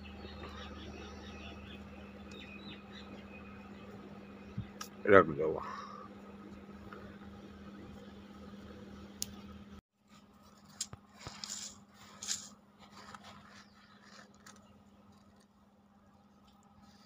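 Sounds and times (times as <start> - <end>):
hand scraping through grit: 10.5 - 15.6.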